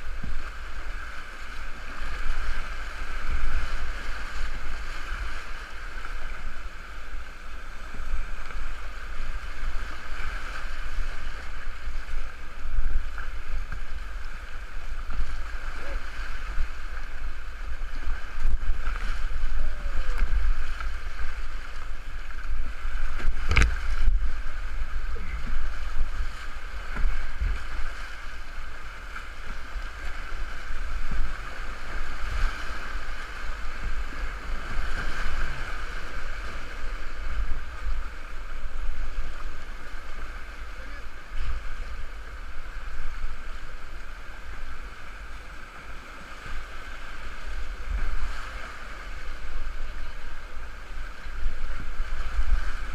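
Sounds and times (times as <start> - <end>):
rushing whitewater: 0.0 - 52.9
water buffeting the microphone: 0.0 - 52.9.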